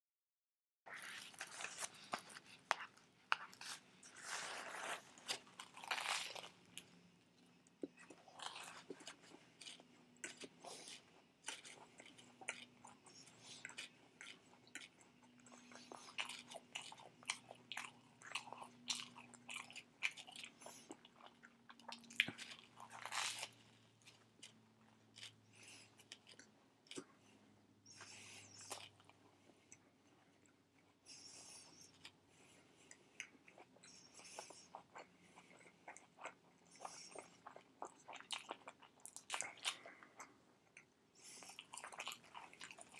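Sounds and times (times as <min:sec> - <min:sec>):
toast crunching while chewing: 0:00.9 - 0:06.8, 0:08.1 - 0:27.0
wet chewing: 0:00.9 - 0:27.3, 0:32.8 - 0:42.9.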